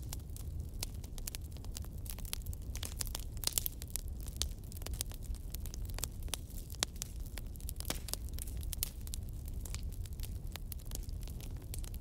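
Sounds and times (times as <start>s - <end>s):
campfire crackling and popping: 0.0s - 12.0s.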